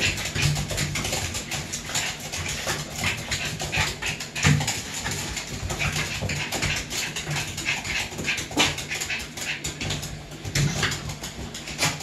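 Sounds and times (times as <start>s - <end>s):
dog panting: 0.0s - 12.0s.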